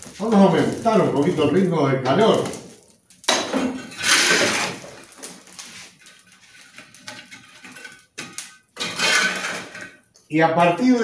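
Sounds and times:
coals rustling: 0.0s - 11.0s
metal shovel scraping brick floor: 3.7s - 8.0s, 8.8s - 10.0s.

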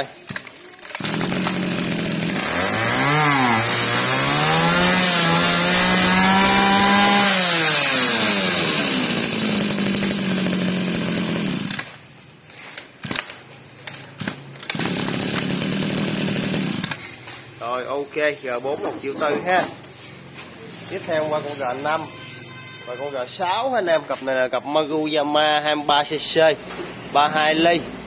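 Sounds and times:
brush cutter engine idling and revving: 0.3s - 12.0s, 13.9s - 17.2s.

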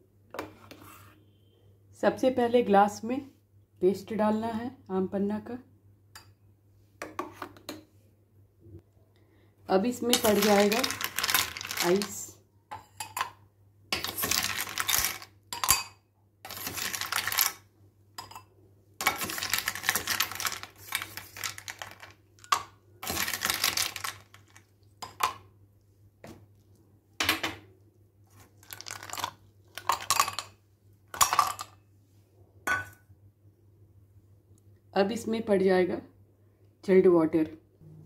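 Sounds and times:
ice cubes clinking against glass: 10.2s - 12.2s, 14.0s - 15.9s.

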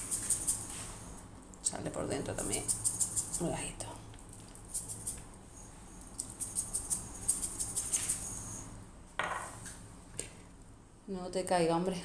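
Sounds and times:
spice jar rattling: 2.4s - 3.4s, 4.6s - 5.2s, 6.2s - 8.6s.

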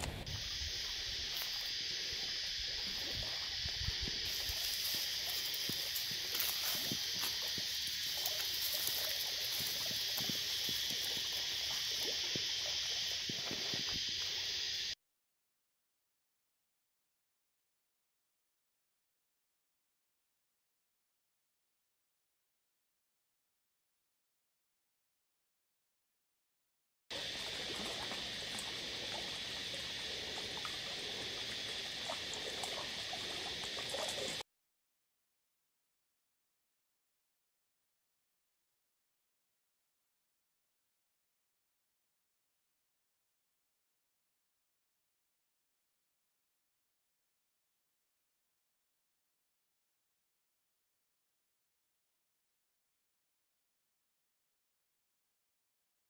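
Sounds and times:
faint clicks and chirps: 0.0s - 15.0s, 27.1s - 34.4s
high hiss of bush ambience: 0.0s - 15.0s, 27.1s - 34.4s
high-pitched insect chorus: 0.0s - 15.0s, 27.1s - 34.4s.

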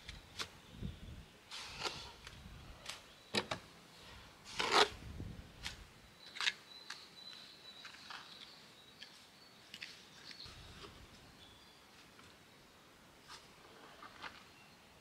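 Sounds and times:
trowel scraping mortar on stone: 4.4s - 5.0s.

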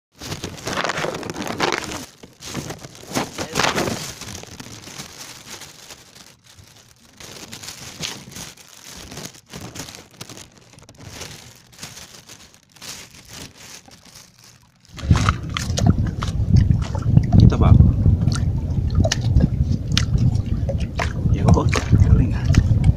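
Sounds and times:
plastic bag crinkling: 0.1s - 16.4s.

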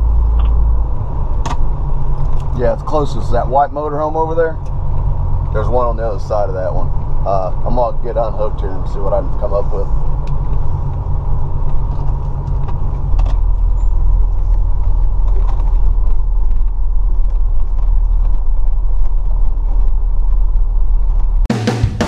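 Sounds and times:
motorhome engine rumbling: 0.0s - 21.5s
creaks and ticks from coach: 10.0s - 21.5s
drum music: 21.5s - 22.0s.

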